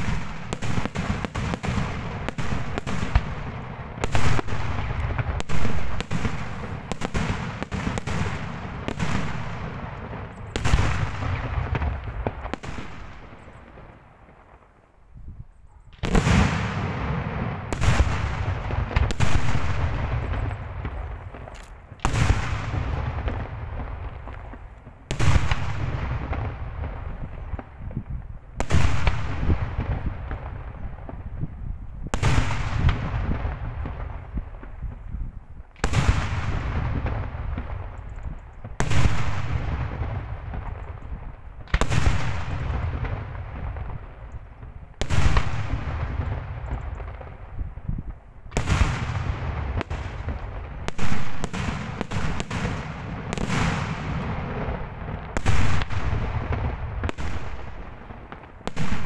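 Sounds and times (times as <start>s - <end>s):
rolling echo: 0.0s - 59.0s.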